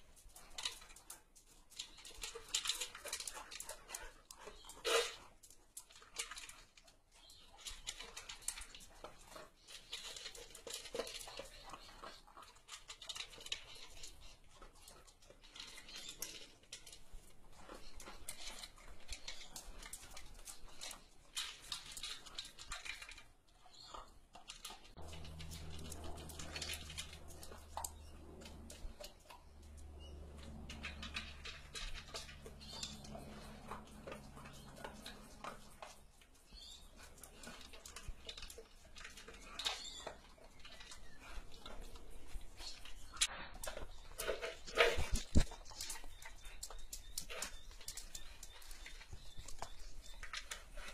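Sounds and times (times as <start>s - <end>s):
dog eating from plastic bowl: 0.0s - 50.9s
low hum: 25.0s - 35.9s.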